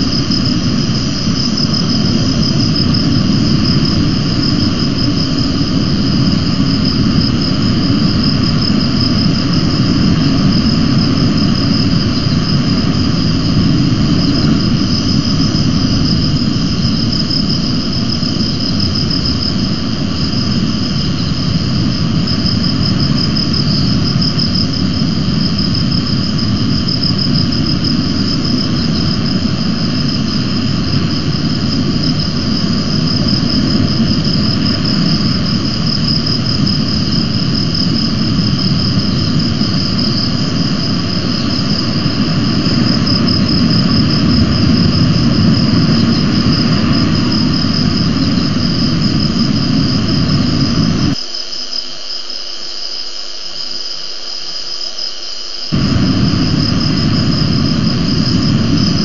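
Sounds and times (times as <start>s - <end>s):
low rumble: 55.8s - 59.0s.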